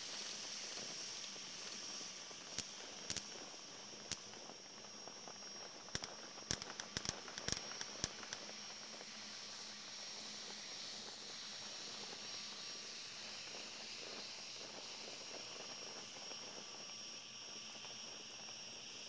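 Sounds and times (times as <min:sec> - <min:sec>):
crickets chirring: 0:02.6 - 0:08.4.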